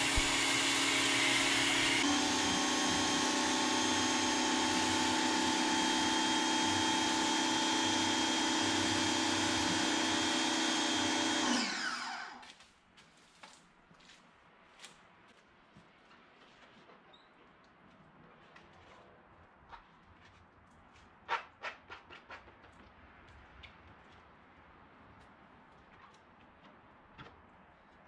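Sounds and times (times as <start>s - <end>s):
pressure washer motor whine: 0.0s - 12.4s.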